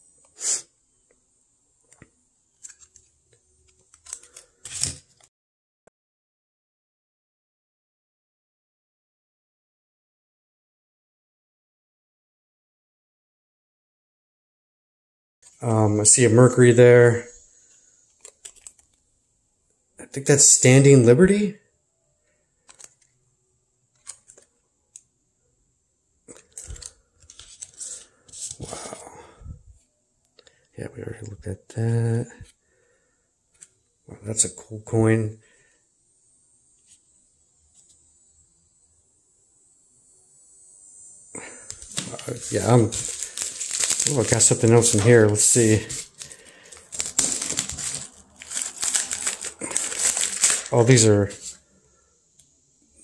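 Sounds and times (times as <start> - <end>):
plastic crinkles and clicks: 1.9 - 5.3, 18.1 - 19.0, 22.6 - 23.2, 23.9 - 25.1, 26.3 - 28.7, 41.7 - 51.6
plastic rustling: 26.3 - 28.8, 41.7 - 51.6.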